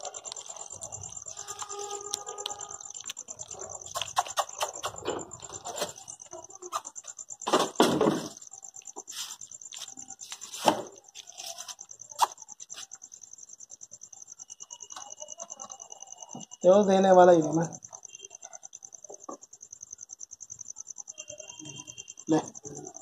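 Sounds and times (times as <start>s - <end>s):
clicks and rustles: 0.0s - 6.9s
night insects chirring: 0.0s - 23.0s.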